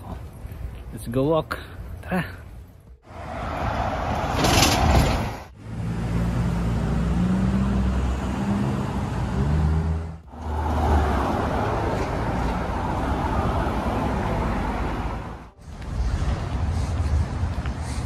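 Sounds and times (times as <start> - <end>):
road noise: 0.0 - 18.0
vehicle engine humming: 5.5 - 18.0.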